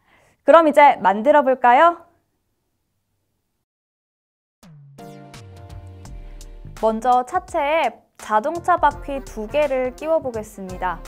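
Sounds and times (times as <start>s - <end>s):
synthesizer background music: 4.6s - 11.0s.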